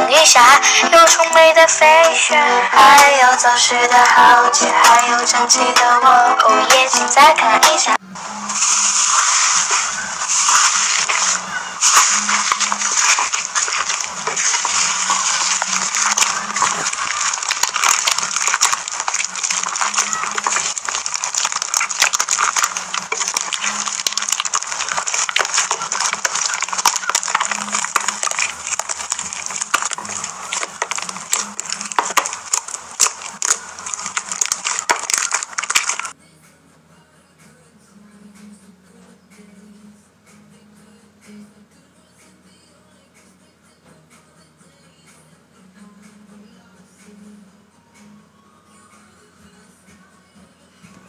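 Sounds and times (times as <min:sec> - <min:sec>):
slime squishing and popping: 0:08.8 - 0:36.2.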